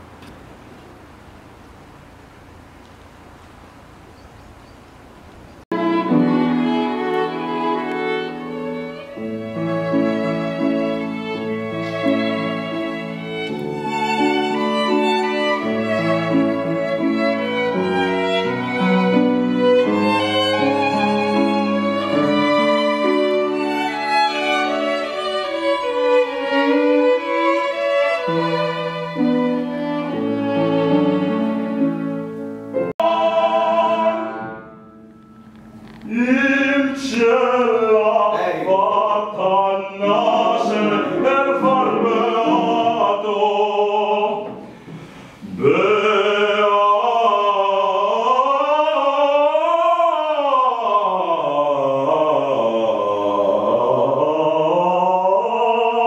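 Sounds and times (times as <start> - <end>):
violins and piano classical music: 5.7 - 50.3
operatic solo voice singing: 32.9 - 34.7, 36.0 - 56.0.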